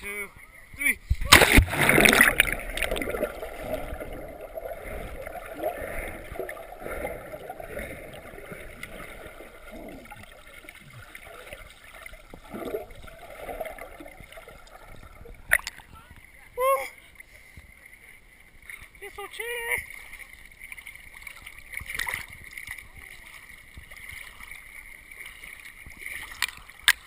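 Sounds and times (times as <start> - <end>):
swimmer moving underwater: 1.1 - 16.4
loud splash of dive: 1.2 - 8.0
underwater gurgling and bubbling: 1.5 - 15.9.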